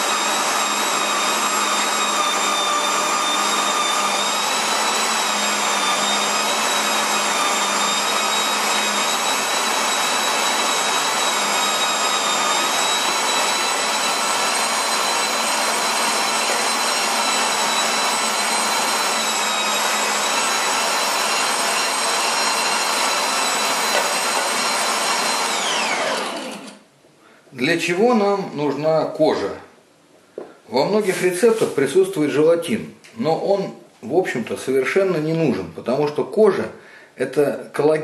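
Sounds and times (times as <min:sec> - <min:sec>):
electric meat grinder whining: 0:00.0 - 0:26.8.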